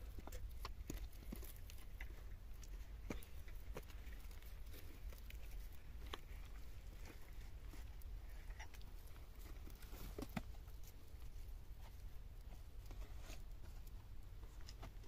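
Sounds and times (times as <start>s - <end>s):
hands tying cord on sticks: 0.0s - 15.0s
low steady rumble: 0.0s - 15.0s.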